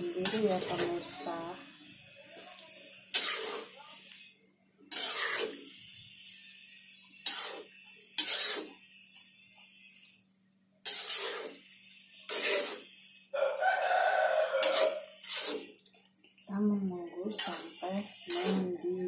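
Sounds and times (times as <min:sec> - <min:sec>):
metal spatula scraping a pot: 0:00.0 - 0:01.4, 0:02.4 - 0:03.9, 0:04.9 - 0:06.4, 0:07.2 - 0:08.8, 0:10.8 - 0:13.0, 0:14.0 - 0:15.9, 0:17.2 - 0:19.0.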